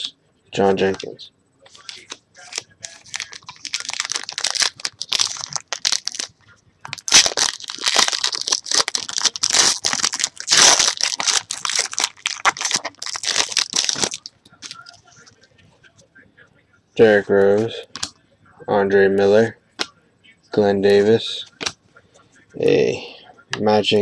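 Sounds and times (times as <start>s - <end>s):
foil wrappers tearing and crinkling: 1.7s - 6.3s, 6.9s - 15.0s.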